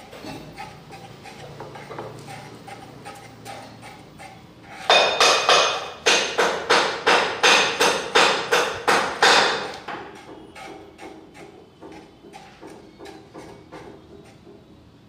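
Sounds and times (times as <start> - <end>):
spatula scraping on stone slab: 0.2 - 5.6, 9.6 - 14.5.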